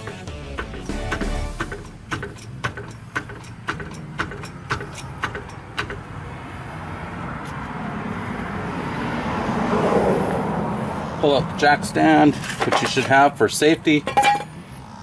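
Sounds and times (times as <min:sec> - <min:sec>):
floor jack pumping clicks: 0:01.2 - 0:06.1
passing motor vehicle: 0:01.6 - 0:13.0, 0:13.9 - 0:15.0.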